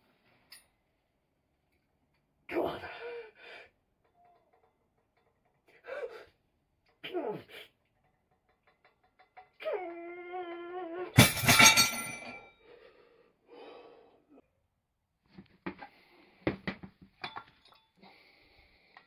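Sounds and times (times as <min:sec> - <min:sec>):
man groaning: 0:02.5 - 0:03.4
weight plates clanking on floor: 0:11.2 - 0:12.4.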